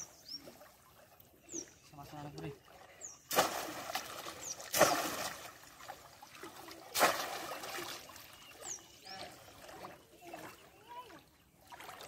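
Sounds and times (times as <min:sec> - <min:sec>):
fish trap splashing into water: 0:03.2 - 0:08.2.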